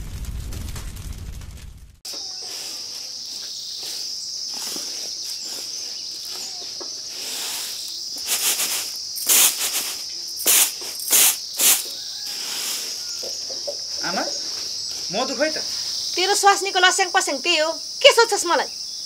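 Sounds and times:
crickets chirring: 0:02.1 - 0:19.0
grain swishing on a tray: 0:02.2 - 0:13.2.

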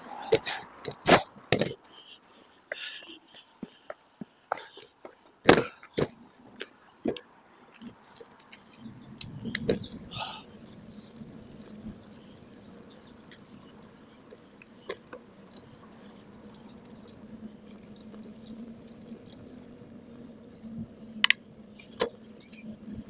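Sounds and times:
bicycle rolling noise: 0:00.0 - 0:23.0
birdsong chirps: 0:00.2 - 0:23.0
bicycle knocks and rattles: 0:00.4 - 0:01.8, 0:04.5 - 0:07.3, 0:09.3 - 0:10.0, 0:21.2 - 0:22.6.

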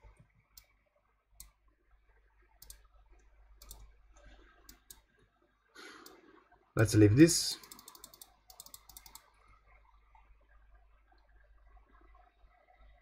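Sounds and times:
computer mouse clicks: 0:00.5 - 0:00.8, 0:02.6 - 0:02.9, 0:03.6 - 0:03.9, 0:04.6 - 0:05.1, 0:06.0 - 0:06.2, 0:07.6 - 0:09.3.

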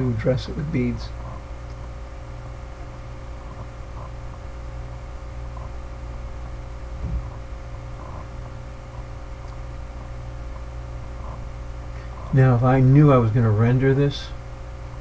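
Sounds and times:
low electrical hum: 0:00.0 - 0:15.0
soft low thump: 0:07.0 - 0:07.4.

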